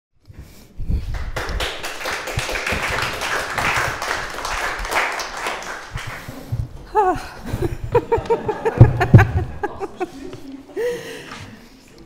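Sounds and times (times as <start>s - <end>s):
audience applauding: 1.1s - 6.6s.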